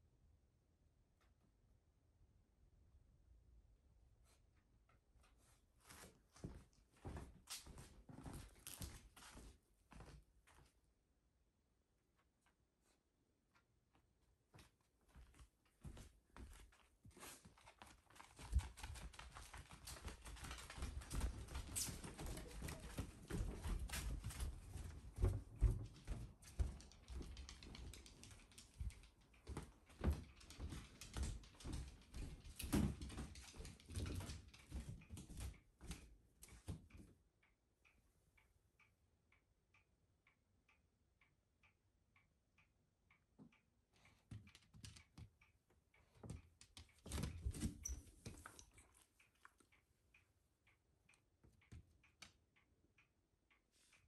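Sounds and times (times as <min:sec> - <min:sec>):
dog paws clattering on floor: 0:05.2 - 0:10.7, 0:14.5 - 0:37.1, 0:46.1 - 0:49.7
footsteps: 0:14.5 - 0:36.1
faint steady ticking: 0:18.1 - 0:47.2, 0:47.8 - 0:54.0.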